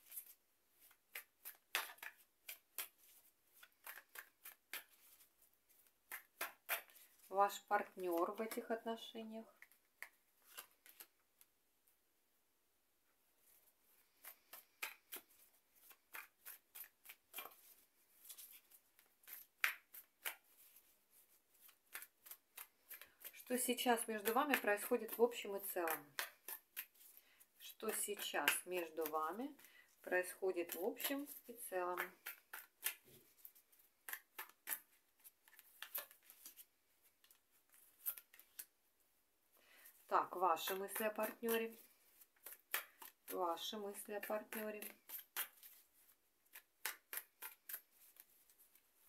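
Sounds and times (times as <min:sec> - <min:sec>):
cards being shuffled: 0:00.0 - 0:07.3, 0:09.6 - 0:11.5, 0:13.5 - 0:38.7, 0:40.7 - 0:43.4, 0:44.1 - 0:49.0.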